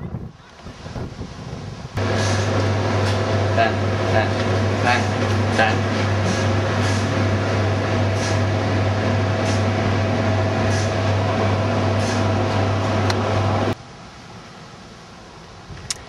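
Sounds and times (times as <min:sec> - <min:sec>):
loud mechanical hum: 0:02.0 - 0:13.8.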